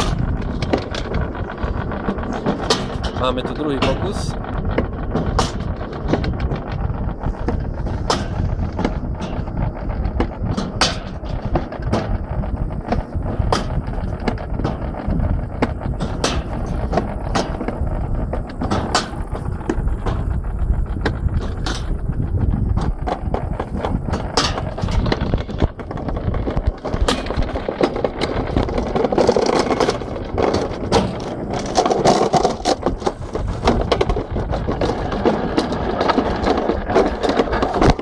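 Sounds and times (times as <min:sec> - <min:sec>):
sled rolling on metal track: 0:00.0 - 0:38.0
clicks and knocks: 0:22.7 - 0:38.0.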